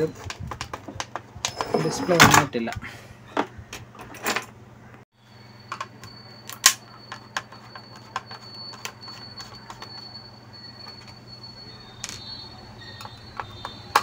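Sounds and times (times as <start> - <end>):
high-pitched whine: 1.4 - 2.4, 5.2 - 14.0.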